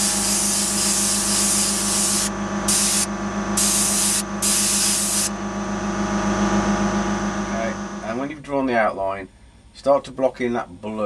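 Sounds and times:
airbrush spraying hiss: 0:00.0 - 0:05.3
steady low hum: 0:00.0 - 0:11.0.

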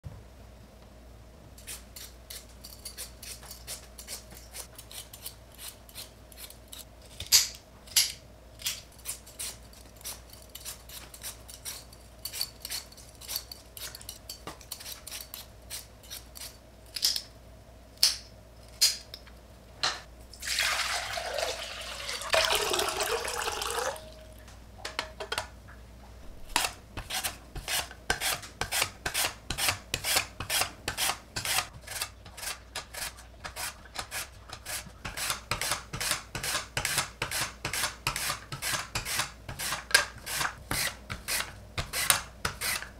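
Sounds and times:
potato rasping on mandoline slicer: 0:01.6 - 0:07.2, 0:08.6 - 0:16.6, 0:26.3 - 0:42.9
peeler scraping potato: 0:01.6 - 0:08.0, 0:08.6 - 0:17.0, 0:26.3 - 0:42.9
running water: 0:20.4 - 0:24.2.

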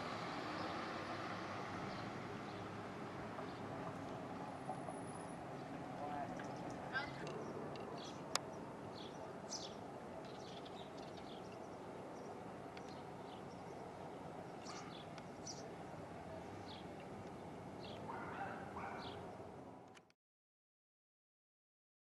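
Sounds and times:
small birds chirping: 0:05.5 - 0:19.5.

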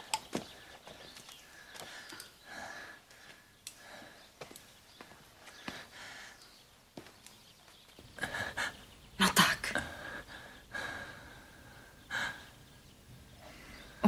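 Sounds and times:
person breathing hard: 0:00.5 - 0:04.5, 0:05.6 - 0:06.5, 0:08.1 - 0:08.8, 0:09.8 - 0:12.8, 0:13.4 - 0:14.0.

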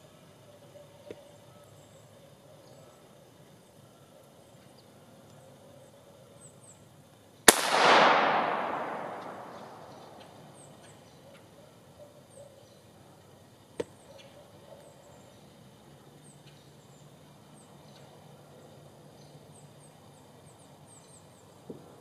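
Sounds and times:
rifle shot with echo: 0:07.5 - 0:10.6.

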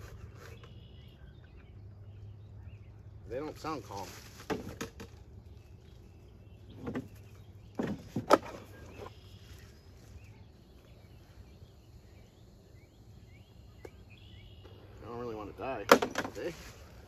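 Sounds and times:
faint bird chirps: 0:00.0 - 0:03.5, 0:05.4 - 0:15.8
low steady hum: 0:00.0 - 0:17.0
beekeeping gear knocking and rattling: 0:15.8 - 0:16.5.

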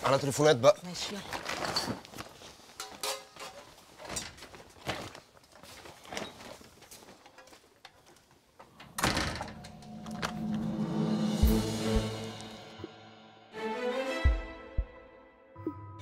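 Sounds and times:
heavy door shutting with a thud: 0:08.8 - 0:10.5.

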